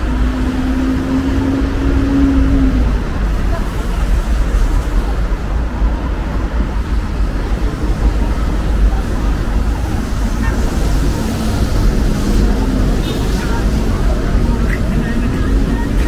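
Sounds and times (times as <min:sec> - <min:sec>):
road traffic rumble: 0:00.0 - 0:16.0
voices of passersby: 0:00.0 - 0:16.0.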